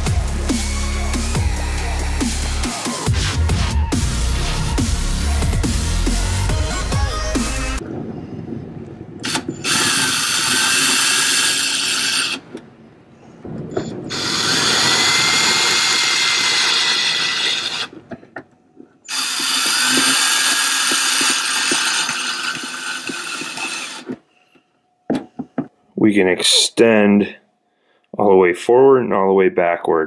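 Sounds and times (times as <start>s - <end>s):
cordless drill motor whine: 9.2s - 12.5s, 14.1s - 17.9s, 19.1s - 24.2s.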